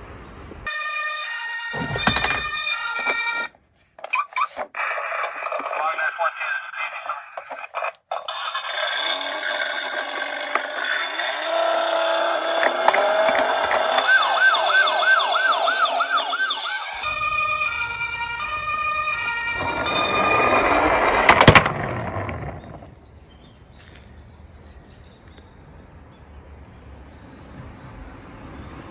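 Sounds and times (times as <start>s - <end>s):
toy electronic siren: 0.7s - 6.1s, 8.1s - 22.5s
toy rolling down wooden slope: 1.1s - 5.8s, 7.3s - 23.1s
loud clatter: 1.8s - 3.2s, 8.3s - 14.2s, 17.3s - 23.0s.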